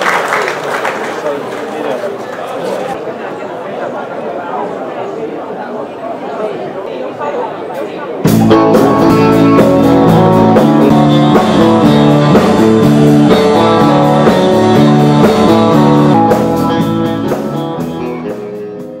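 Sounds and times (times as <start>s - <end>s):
guitar band instrumental music: 8.2s - 19.0s.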